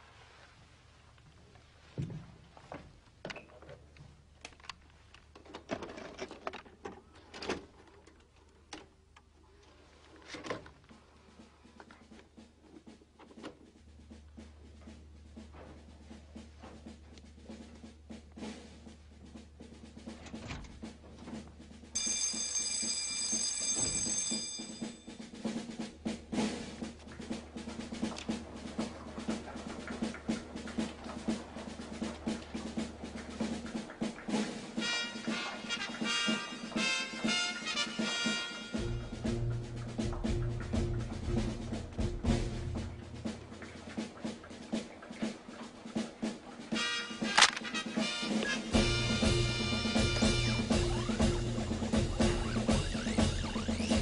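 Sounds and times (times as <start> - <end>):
background music with drums: 10.9 - 54.0
bright high ringing: 22.0 - 25.2.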